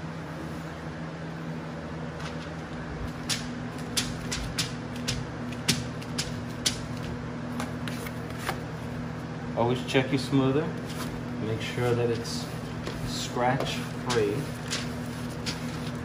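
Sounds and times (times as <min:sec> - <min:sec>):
background hum: 0:00.0 - 0:16.0.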